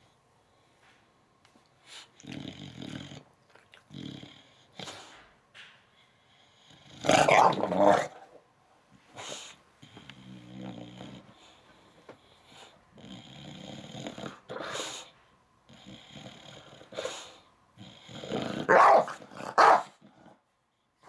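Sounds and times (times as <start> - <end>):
dog grumbling and growling: 2.2 - 4.9, 6.8 - 8.4, 10.0 - 11.4, 12.9 - 14.9, 17.8 - 20.4.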